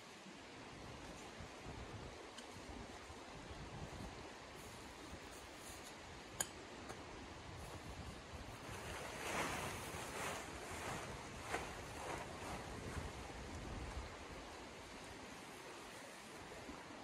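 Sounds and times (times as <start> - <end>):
background noise rush: 7.0 - 17.0
tent fabric rustling: 7.5 - 16.5.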